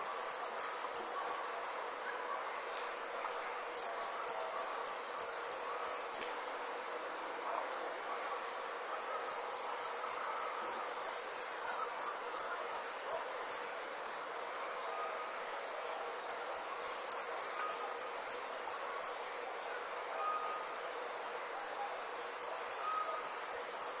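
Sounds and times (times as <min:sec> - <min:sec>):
insect chirping: 0:00.0 - 0:02.4, 0:03.1 - 0:07.8, 0:08.5 - 0:20.9, 0:21.6 - 0:24.0
high-pitched insect trilling: 0:22.3 - 0:24.0.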